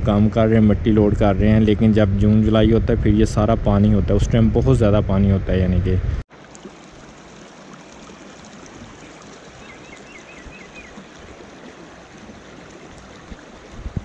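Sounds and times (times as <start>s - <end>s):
stream water flowing: 6.3s - 14.0s.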